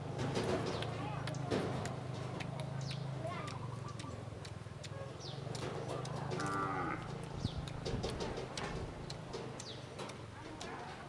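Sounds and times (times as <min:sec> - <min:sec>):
bird chirps: 0:02.8 - 0:04.2
cattle lowing: 0:05.3 - 0:09.2.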